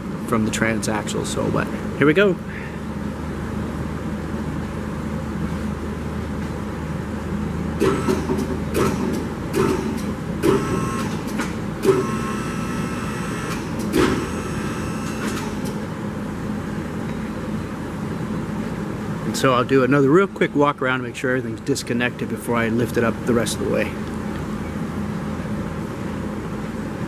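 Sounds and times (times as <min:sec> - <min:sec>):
hydraulic pump motor humming: 0:07.8 - 0:15.9.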